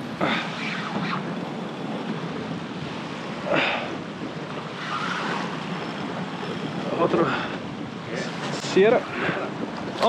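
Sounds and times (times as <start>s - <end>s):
sea water splashing around kayak: 0.0s - 7.8s.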